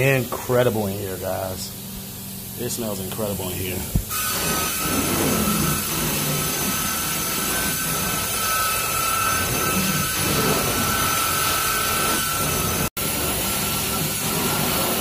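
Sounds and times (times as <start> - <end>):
carpet extraction wand sucking water: 4.0 - 15.0.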